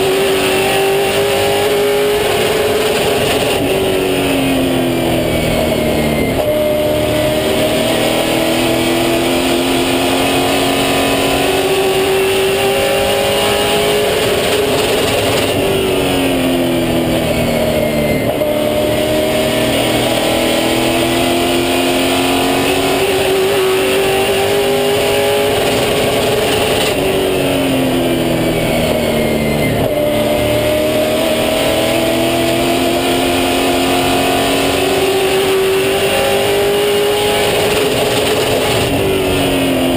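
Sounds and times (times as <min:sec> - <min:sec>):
racing engine at full speed: 0:00.0 - 0:39.9.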